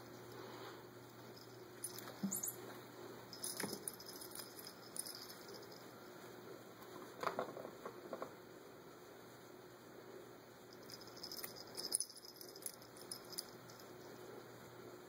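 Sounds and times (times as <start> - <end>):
collar bell jingling: 1.3 - 2.6, 3.3 - 5.9, 10.7 - 14.2.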